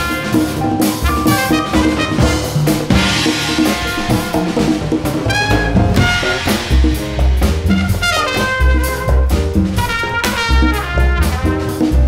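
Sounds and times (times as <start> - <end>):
piano: 0.0 - 12.0
upright bass: 0.0 - 12.0
trumpet phrases: 1.1 - 2.4, 5.3 - 6.6, 7.7 - 11.8.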